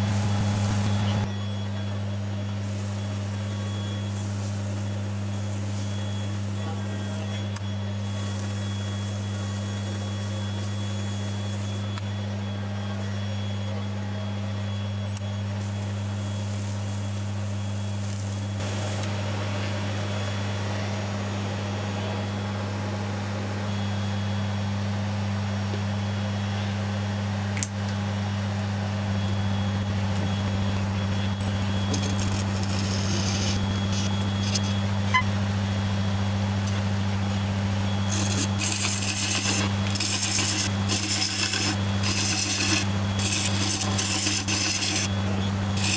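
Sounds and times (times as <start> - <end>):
wood lathe motor humming: 30.6 - 35.2, 37.2 - 45.9
hand rubbing spinning wood: 38.1 - 45.9.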